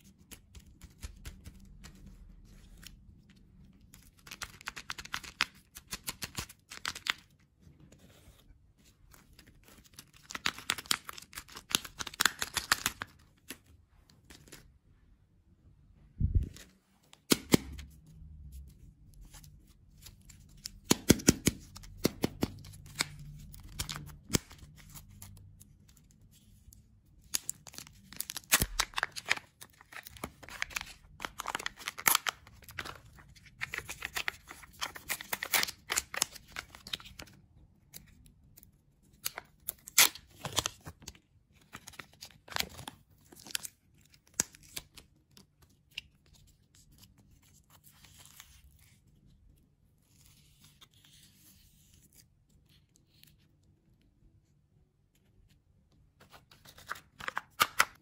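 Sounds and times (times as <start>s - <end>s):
wrapper tearing and crinkling: 27.4s - 33.0s.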